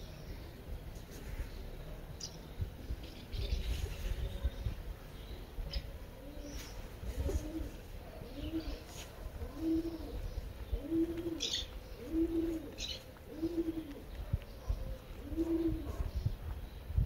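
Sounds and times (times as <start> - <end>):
dove cooing: 5.7 - 16.4.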